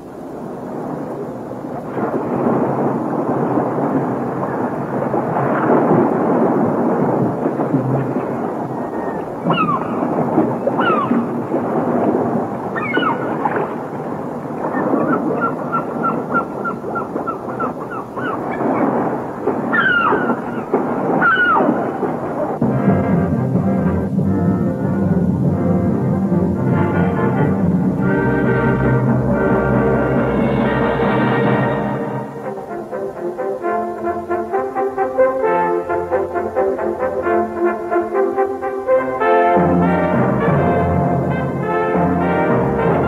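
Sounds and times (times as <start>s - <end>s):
waves breaking on shore: 0.0s - 43.0s
seabirds calling: 8.1s - 22.6s.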